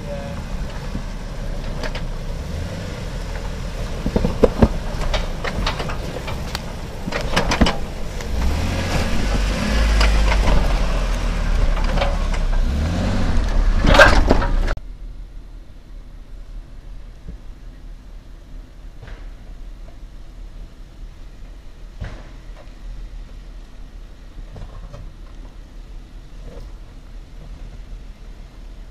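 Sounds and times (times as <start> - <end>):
car engine pulling hard: 0.0 - 14.8
sharp knocks and clunks: 3.3 - 10.8, 13.5 - 14.8, 19.0 - 20.0, 22.0 - 22.7.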